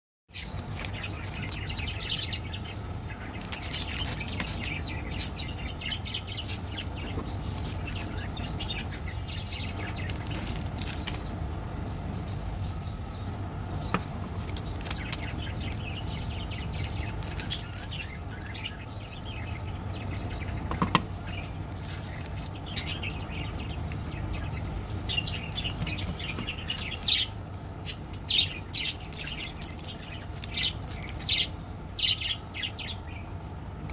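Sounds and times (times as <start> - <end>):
birds chirping: 0.3 - 33.9
steady low hum: 0.3 - 33.9
plastic wrappers crinkling: 0.7 - 2.0, 3.2 - 4.9, 7.6 - 8.2, 9.8 - 11.3, 14.4 - 16.0, 16.6 - 18.0, 28.8 - 31.4.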